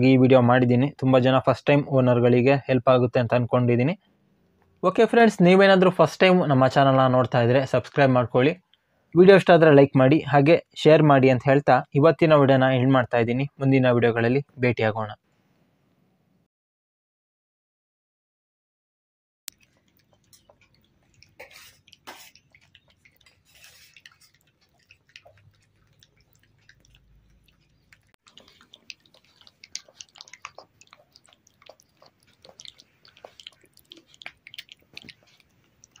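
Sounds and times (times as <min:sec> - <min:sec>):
puppies lapping and chewing: 0:19.5 - 0:36.0.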